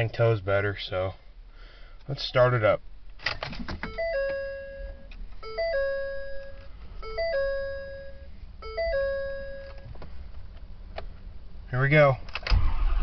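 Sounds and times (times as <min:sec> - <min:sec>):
dashboard warning chime: 0:03.8 - 0:10.0.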